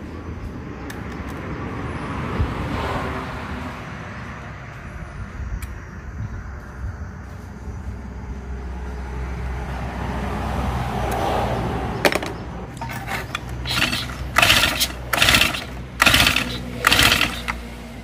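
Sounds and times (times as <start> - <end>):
recoil starter cranking whirr: 12.7 - 18.0.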